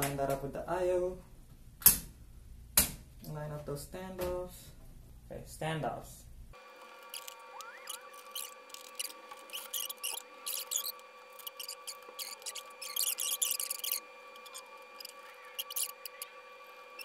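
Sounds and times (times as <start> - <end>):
faint steady hum: 0.1 - 17.0
screwdriver clicking and scraping: 6.8 - 16.3.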